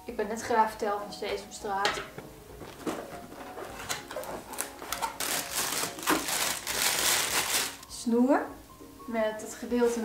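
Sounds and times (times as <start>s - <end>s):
cardboard box rustling: 2.6s - 7.8s
plastic bag crinkling: 2.8s - 7.9s.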